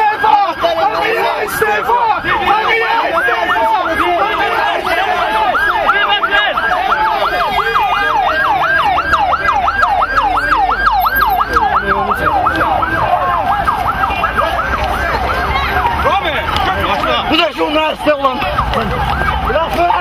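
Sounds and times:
people shouting: 0:00.0 - 0:20.0
siren yelping: 0:00.0 - 0:20.0.

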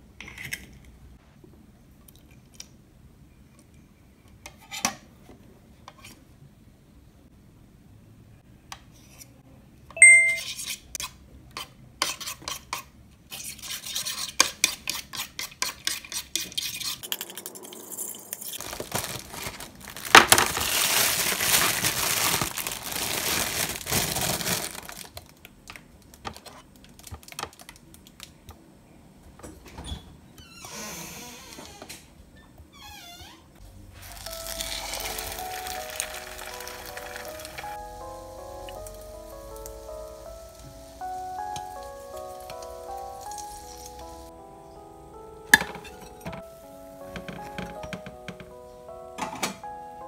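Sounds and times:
rustling: 0:18.4 - 0:25.1.

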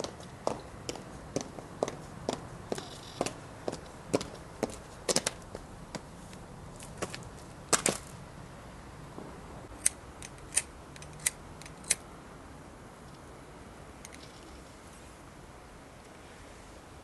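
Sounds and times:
footsteps on pavement: 0:00.0 - 0:08.2.

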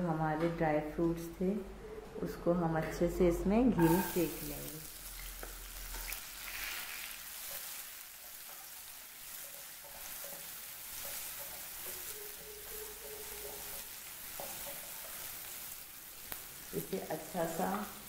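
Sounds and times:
nuts sizzling in hot fat: 0:03.8 - 0:18.0
spatula stirring in pan: 0:05.1 - 0:18.0.

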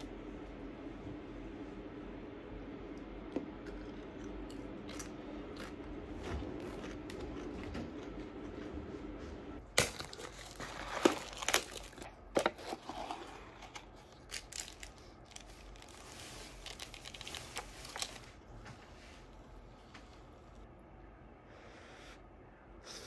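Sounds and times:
packaging crinkling and tearing: 0:09.7 - 0:18.4.

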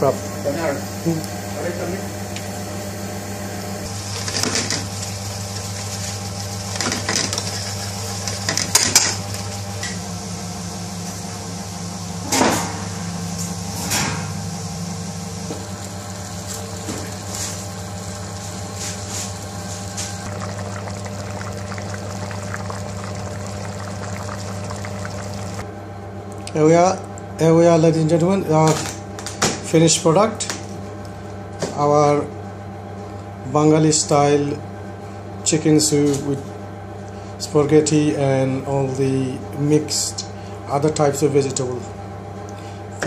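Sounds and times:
low electrical hum: 0:00.0 - 0:43.0
soup boiling: 0:14.8 - 0:25.6.

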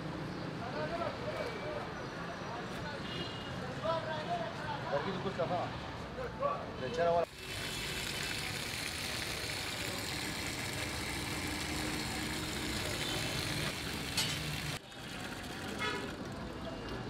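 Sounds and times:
water running from a tap: 0:07.3 - 0:16.4.

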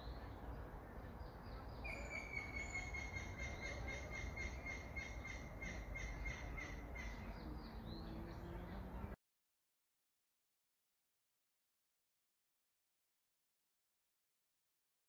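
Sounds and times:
bird singing: 0:00.0 - 0:09.2.

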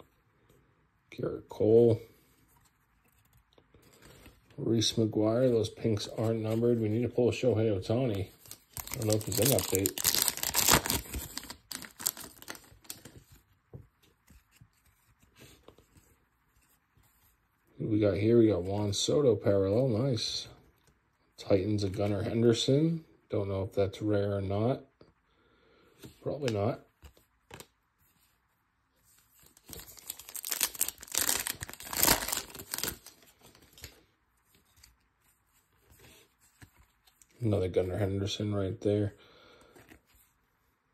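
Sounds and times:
trading cards shuffled by hand: 0:08.1 - 0:13.2, 0:29.3 - 0:35.0
foil wrapper rustling: 0:08.4 - 0:13.1, 0:29.6 - 0:33.9.

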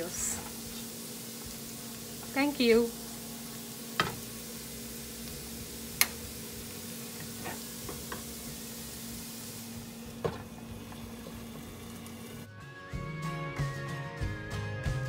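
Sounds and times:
food sizzling in a frying pan: 0:00.0 - 0:12.5
wooden spatula knocking on pan: 0:04.0 - 0:04.2.

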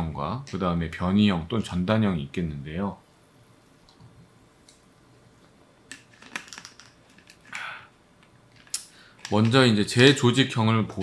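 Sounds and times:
man breathing out: 0:07.5 - 0:08.0.

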